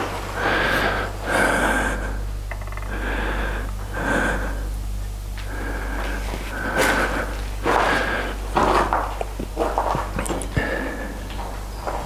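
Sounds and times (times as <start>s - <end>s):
low steady hum: 0.0s - 12.0s
person breathing close: 0.3s - 8.6s, 10.4s - 11.3s.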